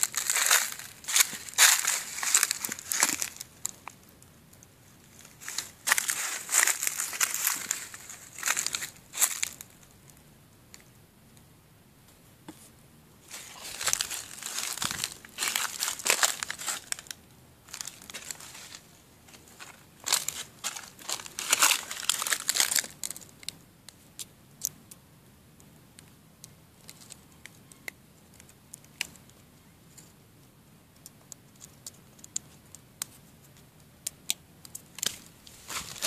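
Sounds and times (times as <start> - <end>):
scratchy crinkling and rustling: 0.0 - 4.0, 5.0 - 9.8, 12.5 - 24.0, 31.0 - 36.0.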